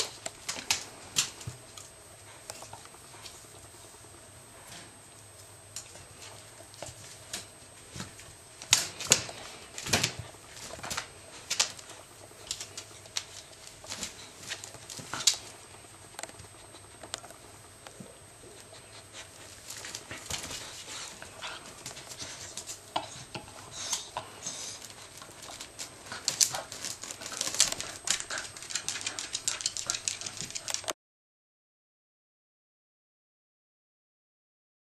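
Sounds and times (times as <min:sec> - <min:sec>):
dog claws clicking on floor: 0:05.8 - 0:15.5, 0:19.4 - 0:31.0
dogs digging in basket: 0:18.7 - 0:30.9.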